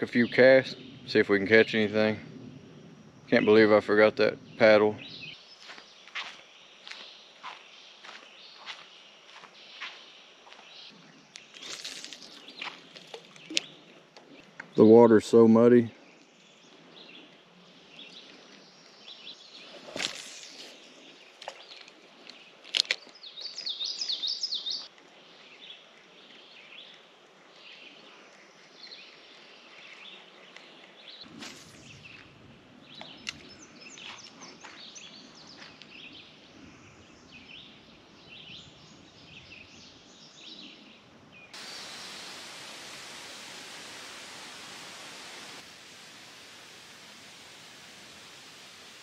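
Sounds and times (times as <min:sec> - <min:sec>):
songbirds chirping: 0:00.0 - 0:49.0
low rushing noise: 0:41.6 - 0:49.0.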